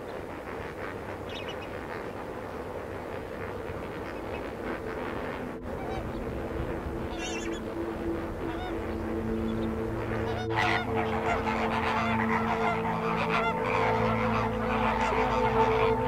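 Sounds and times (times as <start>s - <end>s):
flamingos honking and gabbling: 0.0s - 16.0s
held chord of background music: 3.6s - 16.0s.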